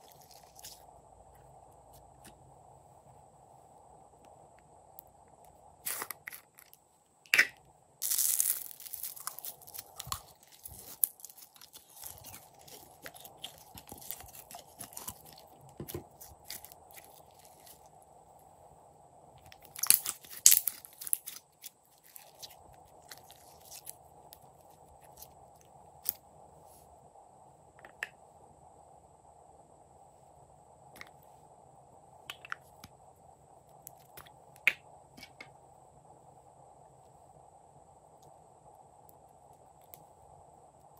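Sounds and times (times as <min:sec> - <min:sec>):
slime crackling and popping: 0:05.8 - 0:17.9, 0:19.4 - 0:25.3.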